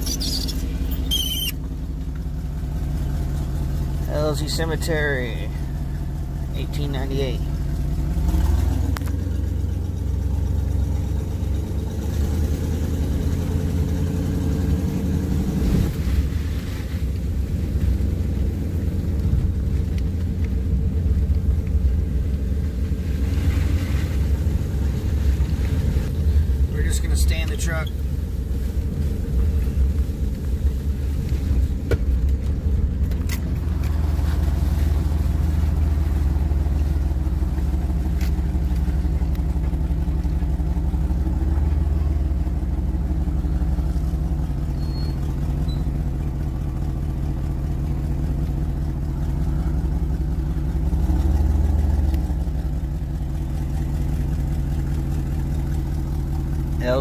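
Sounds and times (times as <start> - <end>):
truck engine low rumble: 0.0 - 57.0.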